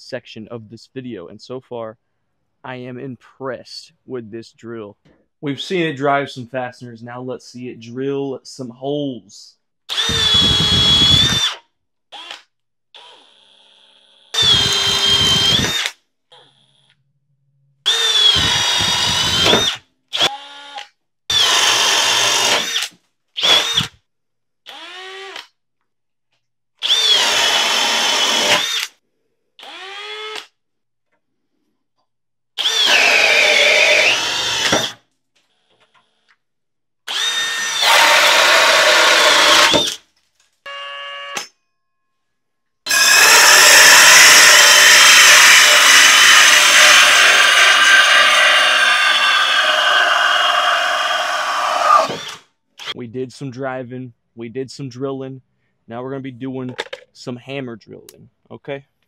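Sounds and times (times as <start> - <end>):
cordless drill boring into wood: 9.9 - 12.4, 13.0 - 16.0, 17.9 - 24.0, 24.7 - 25.5, 26.8 - 29.0, 29.6 - 30.5, 32.6 - 35.0, 37.1 - 40.0, 42.9 - 53.0.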